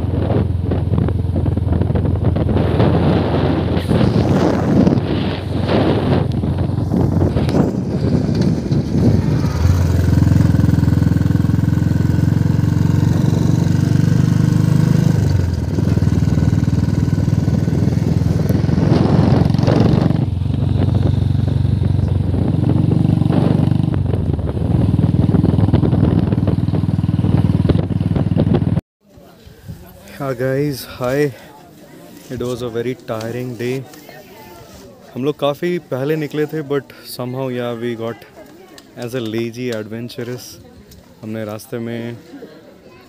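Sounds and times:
motorcycle engine running: 0.0s - 28.8s.

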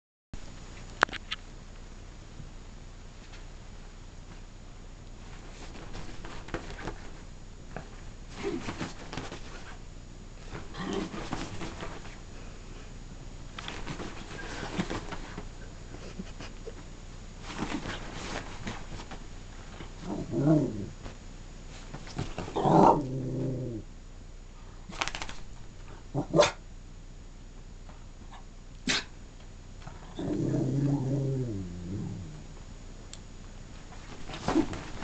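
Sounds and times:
bedding rustling: 5.2s - 23.7s, 24.8s - 26.0s, 33.7s - 35.0s
dog growly grumbling moans: 20.0s - 21.0s, 22.5s - 23.8s, 29.9s - 32.5s.

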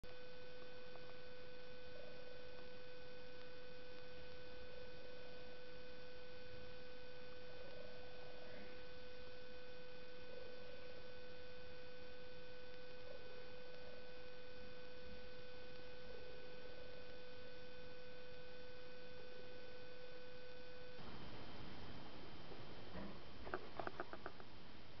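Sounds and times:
faint soft sounds: 0.0s - 25.0s
steady electrical hum: 0.0s - 25.0s.

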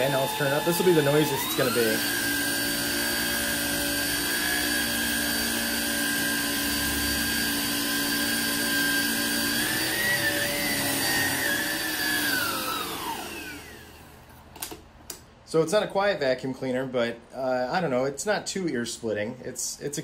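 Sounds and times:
vacuum cleaner motor whine: 0.0s - 14.2s.

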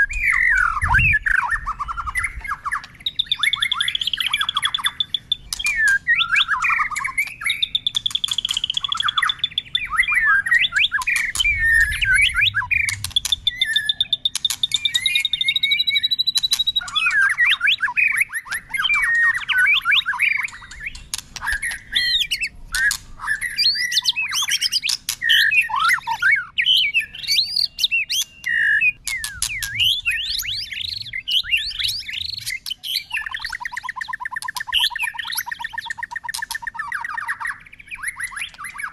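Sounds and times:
songbird singing whistles and trills: 0.0s - 38.9s.

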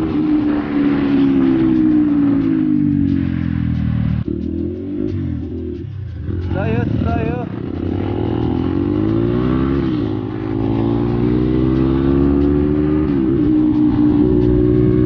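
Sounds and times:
dirt bike engine accelerating: 0.0s - 15.0s.

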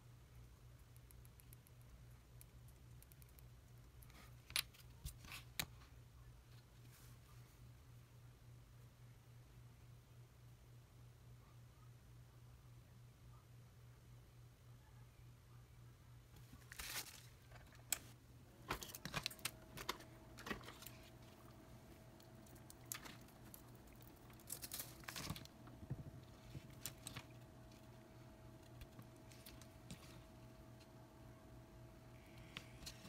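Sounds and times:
faint steady tone: 5.8s - 16.5s, 17.5s - 33.0s
plastic bags crinkling: 18.6s - 21.4s, 22.2s - 25.7s.

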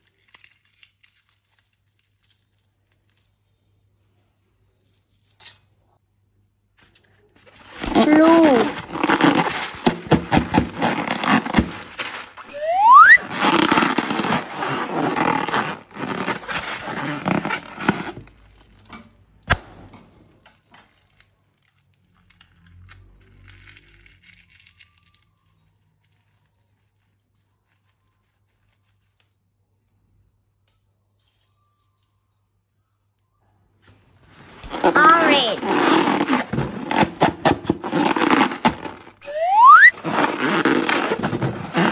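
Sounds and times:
short rising squeak: 12.5s - 14.4s, 39.2s - 41.9s.

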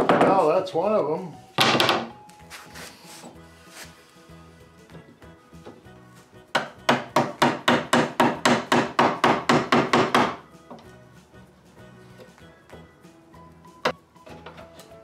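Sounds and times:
mallet striking a tool: 6.6s - 10.4s.

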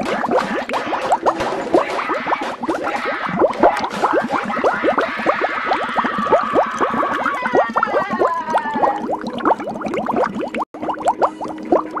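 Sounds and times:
cartoon bubbling bloops: 0.0s - 12.0s.

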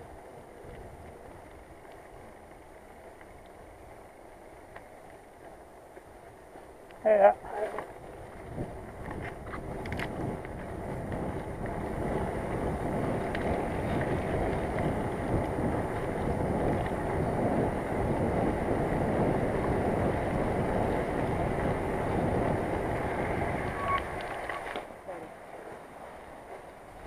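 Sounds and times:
bicycle tyre rumble: 0.0s - 27.0s
wind on microphone: 7.0s - 25.2s.

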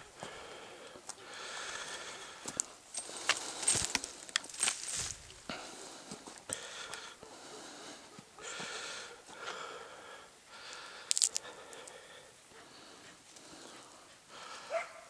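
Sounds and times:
person breathing hard: 0.0s - 15.0s
twigs cracking: 2.4s - 7.1s, 10.7s - 12.0s
vegetation brushing and rustling: 2.5s - 5.5s.

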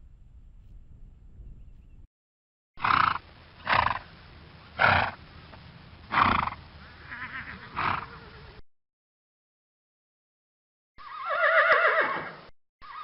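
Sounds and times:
horse whinnying: 6.1s - 8.6s, 11.0s - 13.0s.

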